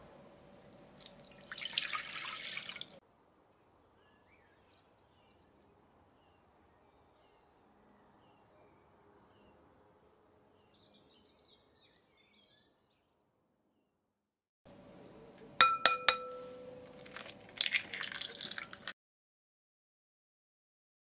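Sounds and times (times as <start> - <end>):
egg knocking on glass bowl: 15.6 - 16.8
eggshell crackling: 16.8 - 19.0.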